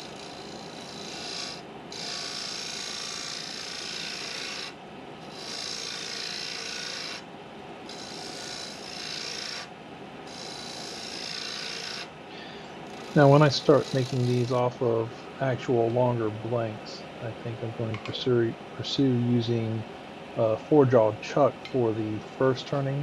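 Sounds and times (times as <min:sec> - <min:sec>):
lathe tool cutting wood: 0:00.0 - 0:04.7, 0:05.3 - 0:07.2, 0:07.9 - 0:09.7, 0:10.3 - 0:12.1, 0:12.9 - 0:14.7.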